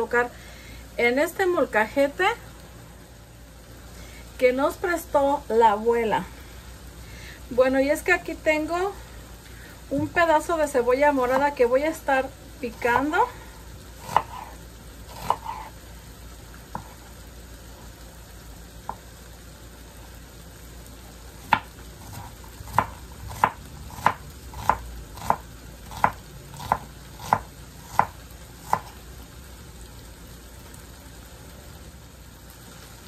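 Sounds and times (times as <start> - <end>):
meat sizzling in a pan: 0.0 - 33.0
knife chopping on wooden board: 14.0 - 15.7, 21.5 - 29.0.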